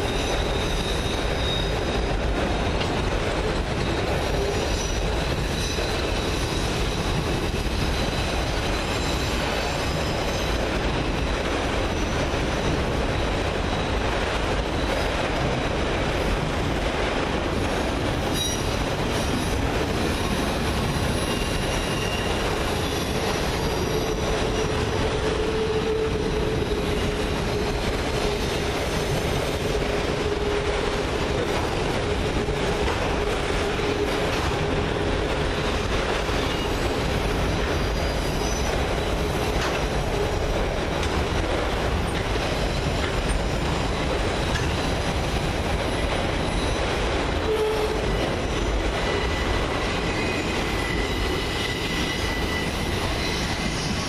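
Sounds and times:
wheel squeal: 0.0s - 2.1s, 18.3s - 27.4s, 36.4s - 39.8s, 45.9s - 54.0s
train wheels rumbling on rail: 0.0s - 54.0s.

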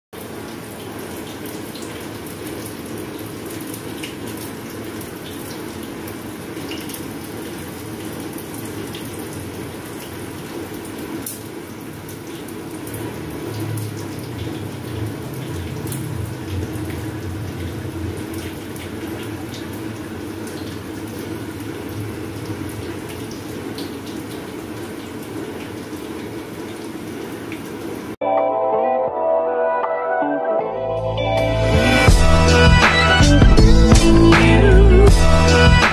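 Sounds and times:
water running from tap: 0.2s - 28.2s
music: 28.2s - 35.9s.

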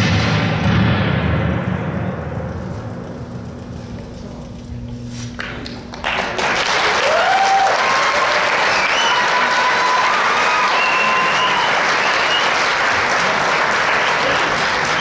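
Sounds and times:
audience applause: 5.9s - 15.0s.

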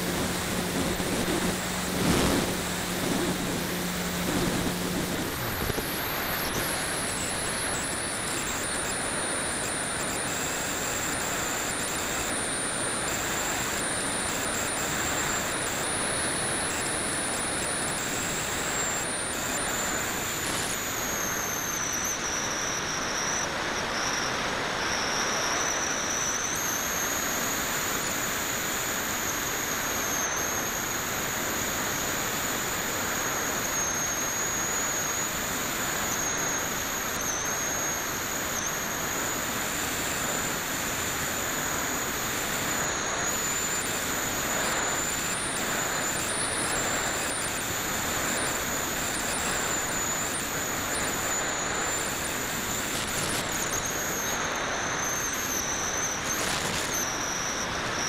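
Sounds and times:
wind rushing over camera: 0.0s - 8.4s
high-pitched whine: 0.0s - 58.0s.

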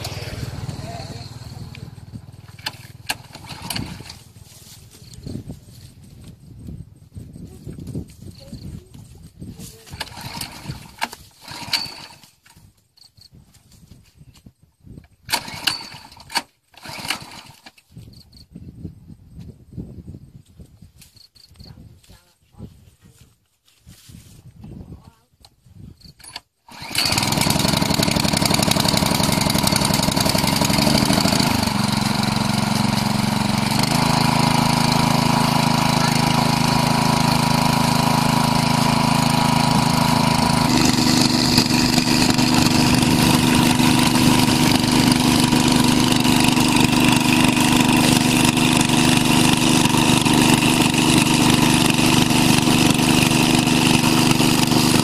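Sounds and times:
small petrol engine running: 0.0s - 6.4s, 7.4s - 12.4s, 15.2s - 17.8s, 26.2s - 55.0s
water pumping through hose: 2.5s - 4.3s, 9.7s - 12.2s, 26.7s - 55.0s.

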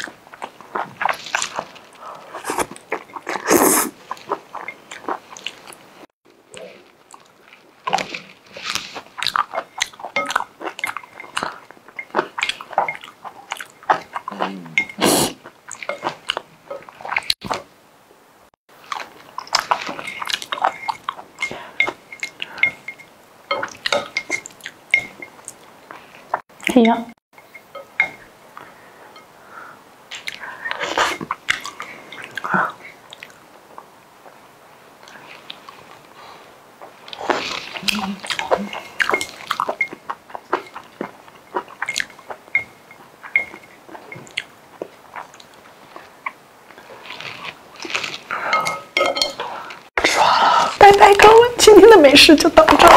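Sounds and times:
food being stirred: 0.0s - 6.1s, 6.7s - 17.8s, 18.7s - 29.3s, 35.0s - 50.0s
spoon and chopsticks clinking on bowl: 19.7s - 25.4s, 38.3s - 44.3s, 48.5s - 49.4s.

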